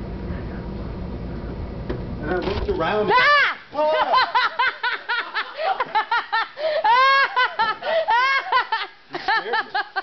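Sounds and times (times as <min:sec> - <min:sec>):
person laughing hard: 0:03.2 - 0:10.0.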